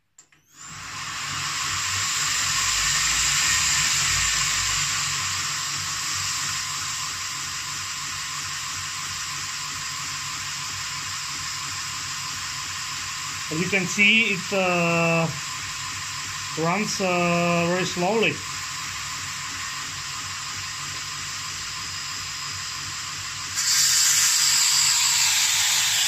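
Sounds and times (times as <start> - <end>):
belt sander whirring: 13.5 - 15.6, 16.4 - 18.5, 23.6 - 26.0.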